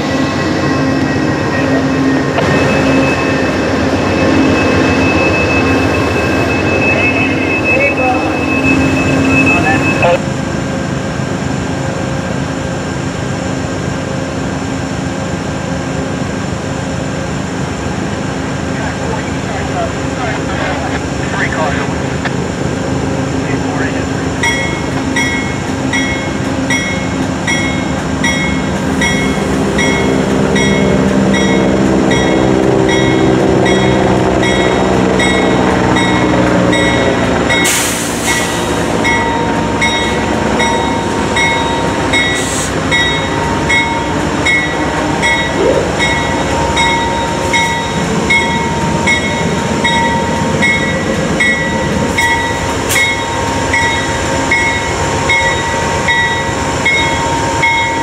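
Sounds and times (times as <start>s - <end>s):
diesel locomotive engine revving: 0.0s - 58.0s
bell ringing: 39.0s - 58.0s.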